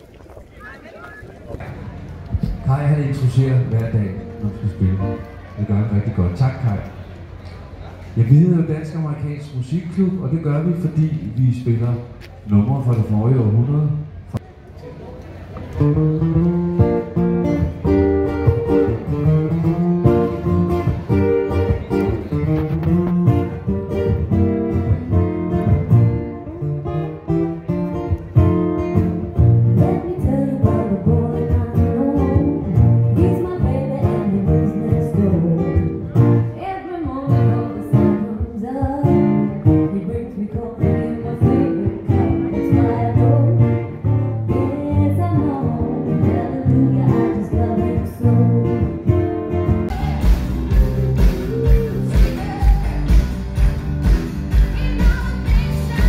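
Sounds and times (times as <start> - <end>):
acoustic guitars strummed and picked: 15.6 - 56.0
person singing: 49.9 - 53.3.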